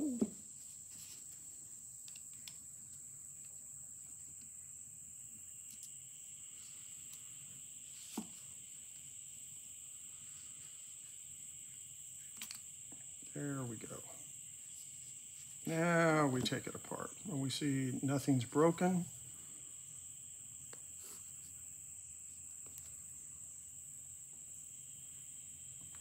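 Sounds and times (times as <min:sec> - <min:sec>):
steady high-pitched whine: 0:00.0 - 0:26.0
screwdriver and small screws clicking: 0:12.4 - 0:12.6.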